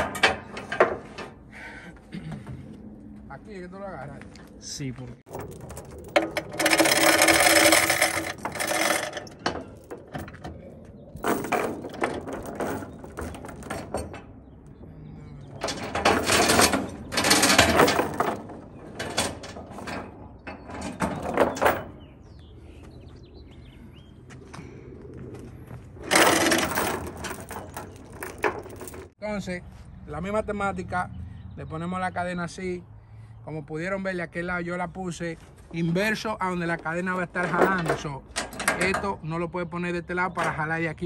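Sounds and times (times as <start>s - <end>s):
steel chain rattling and clanking: 5.3s - 10.6s, 11.2s - 14.4s, 15.5s - 22.0s, 26.0s - 29.2s.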